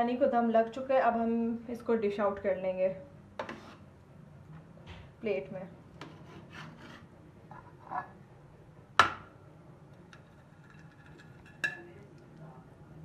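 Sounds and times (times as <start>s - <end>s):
spoon scraping rice in pot: 3.4s - 3.9s, 6.0s - 8.1s, 10.1s - 11.9s.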